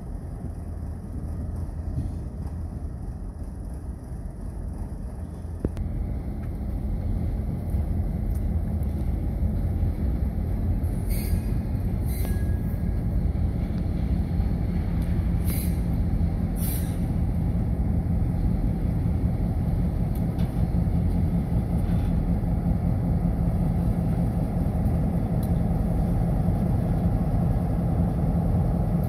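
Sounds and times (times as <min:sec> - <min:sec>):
locomotive engine rumbling: 0:00.0 - 0:29.0
brief hisses: 0:16.6 - 0:17.1.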